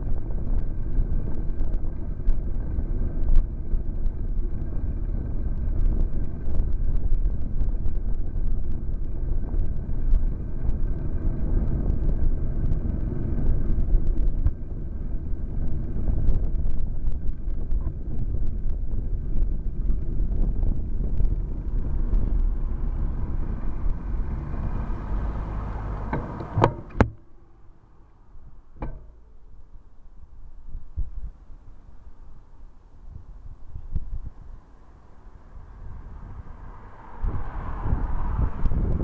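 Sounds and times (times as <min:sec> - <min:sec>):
traffic rumble: 0:00.0 - 0:39.0
wind: 0:00.0 - 0:39.0
sharp knocks: 0:26.1 - 0:27.2, 0:28.8 - 0:29.3.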